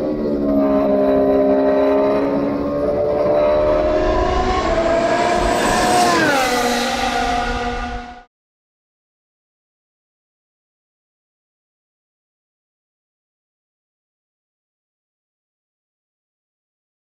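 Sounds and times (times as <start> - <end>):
race car engine running: 0.0 - 8.3.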